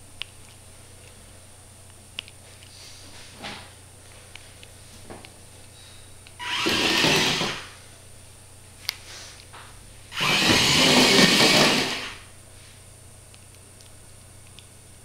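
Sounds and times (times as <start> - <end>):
small motors whirring: 6.4 - 7.7, 10.1 - 12.2.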